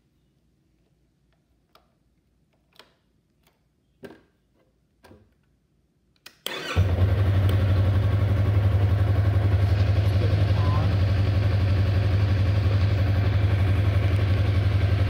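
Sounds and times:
motorcycle starting and idling: 6.5s - 15.0s.

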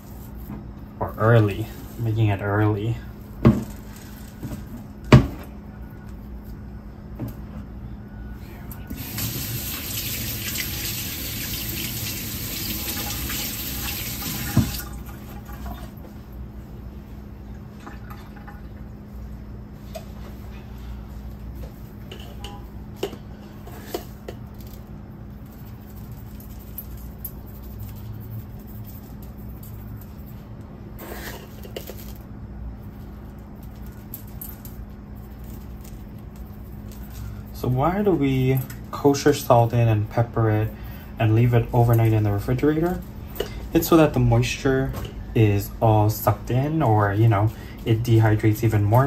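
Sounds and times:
steady low hum: 0.0s - 10.4s, 11.0s - 49.0s
faucet running into sink: 9.0s - 15.8s.

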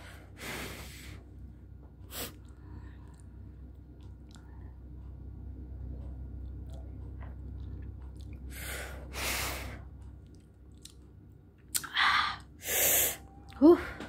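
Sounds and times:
person chewing noodles: 2.1s - 12.0s.

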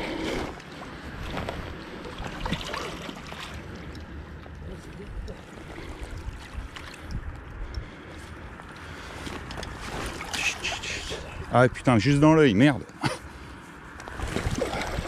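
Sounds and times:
fish splashing in shallow water: 0.0s - 7.4s, 8.9s - 11.5s, 14.0s - 15.0s
wind rumble on microphone: 0.0s - 10.3s, 14.0s - 15.0s.

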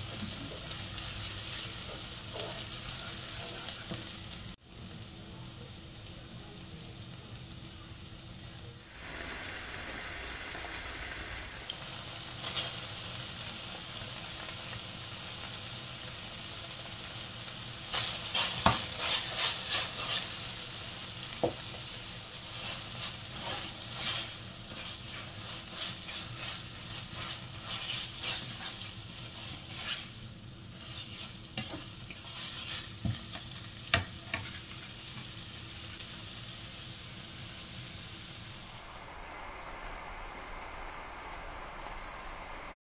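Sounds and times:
food sizzling in oil: 0.0s - 39.2s
spoon scraping a pan: 1.5s - 4.0s, 17.9s - 35.3s.

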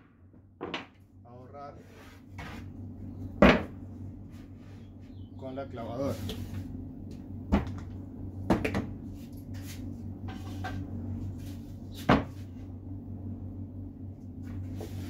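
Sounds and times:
wooden boards knocking on workbench: 0.6s - 1.0s, 3.4s - 3.7s, 12.1s - 12.4s.

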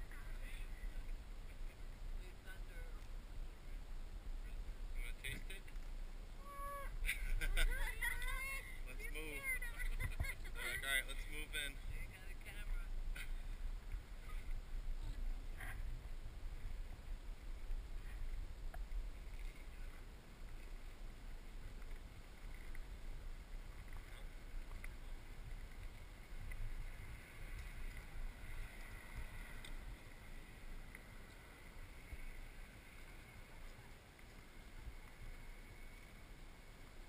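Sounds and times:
faint outdoor ambience: 0.0s - 37.0s
wind buffeting microphone: 6.4s - 10.6s.

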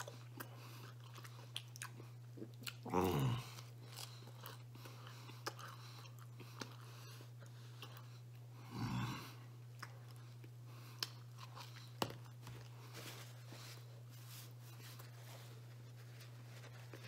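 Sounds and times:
man chewing crunchy food: 0.0s - 13.0s.

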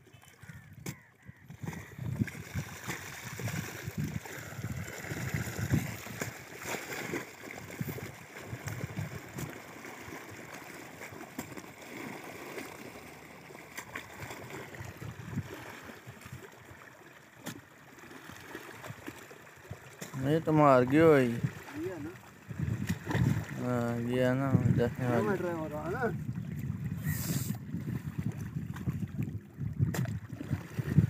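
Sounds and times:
low splashes: 0.0s - 31.0s
water running in a channel: 0.0s - 31.0s
spade in wet mud: 17.4s - 17.7s.

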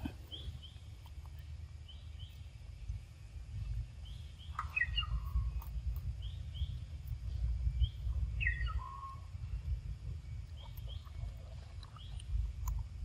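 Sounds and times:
constant low rumble: 0.0s - 13.0s
short high bird chirps: 4.5s - 5.6s.

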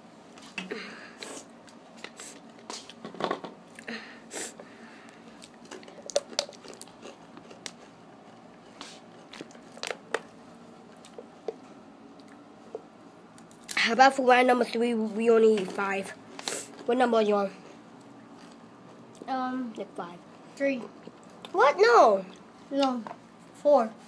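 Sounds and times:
chips being crunched and chewed: 5.4s - 8.0s, 9.1s - 10.4s.

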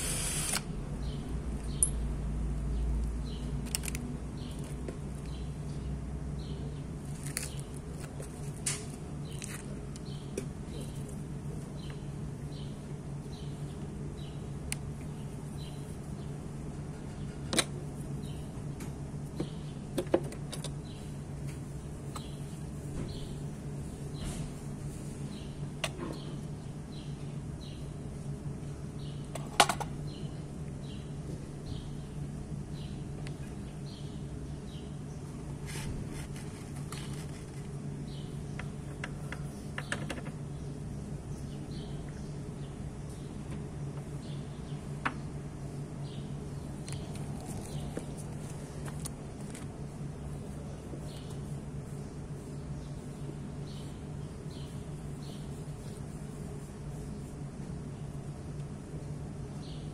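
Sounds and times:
steady low hum: 0.0s - 59.9s
clicks and knocks of handling parts: 3.0s - 5.3s, 29.3s - 30.0s.

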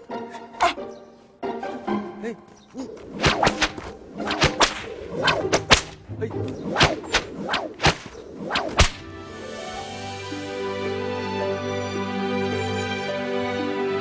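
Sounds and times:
whip cracking: 3.0s - 9.1s.

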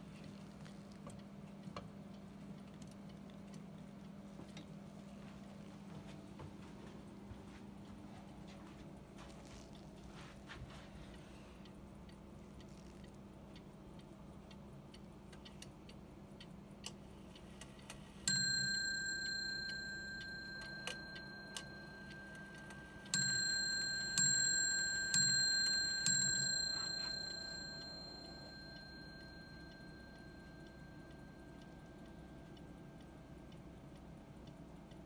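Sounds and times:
clock ticking: 8.8s - 35.0s
clock striking bell: 18.3s - 31.7s.

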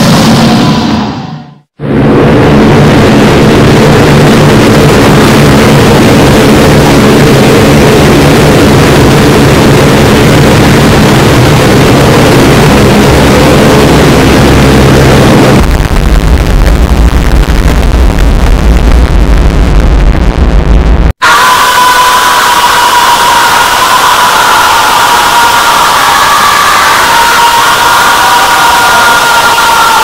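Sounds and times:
distorted engine-like roar: 0.0s - 30.0s
deep heavy rumble: 1.8s - 21.2s.

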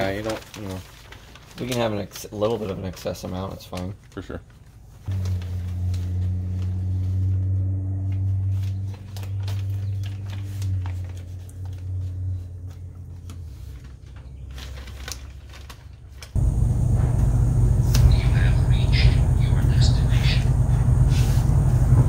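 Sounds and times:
plastic sheeting crinkling: 0.0s - 16.6s
steady low hum: 4.8s - 14.6s, 16.4s - 22.0s
loud low rumble: 5.1s - 13.4s, 16.4s - 22.0s.

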